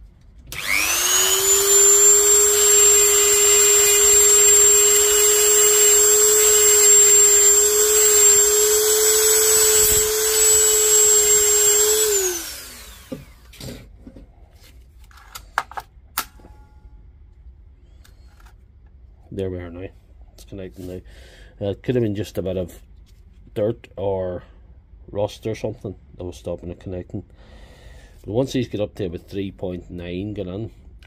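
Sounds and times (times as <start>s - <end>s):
rotary power tool whining: 0.5s - 13.6s.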